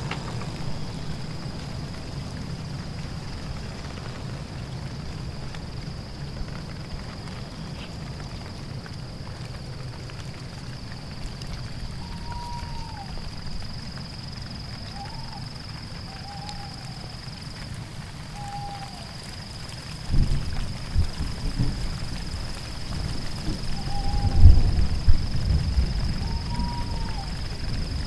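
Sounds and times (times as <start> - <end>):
short hooting calls: 12.0 - 13.2, 14.9 - 15.5, 16.1 - 17.2, 18.3 - 19.1, 23.7 - 24.6, 26.2 - 27.5.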